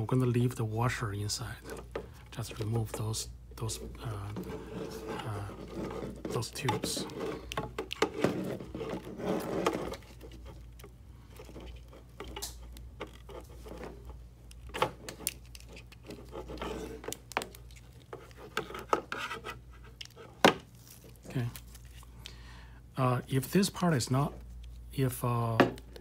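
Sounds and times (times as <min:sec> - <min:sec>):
plastic rubbing and scraping: 0:01.4 - 0:22.1.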